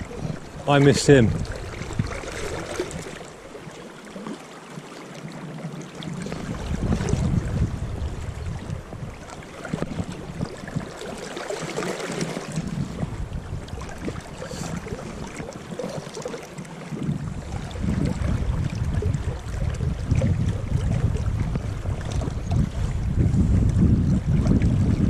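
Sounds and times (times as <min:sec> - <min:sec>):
wind buffeting microphone: 0:00.0 - 0:03.6, 0:06.0 - 0:25.0
river water rushing: 0:00.0 - 0:19.7.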